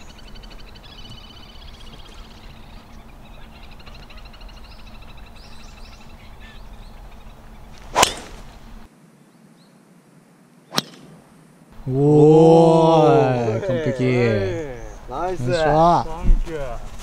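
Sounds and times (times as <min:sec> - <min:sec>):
faint bird chirping: 0:00.0 - 0:12.0, 0:13.2 - 0:16.0
golf club striking ball: 0:07.8 - 0:08.5, 0:10.7 - 0:11.2.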